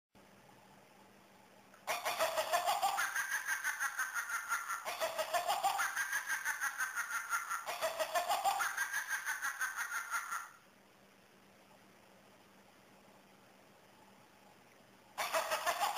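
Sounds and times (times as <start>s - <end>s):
electronic toy cackling laugh: 1.8s - 10.6s, 15.2s - 15.9s.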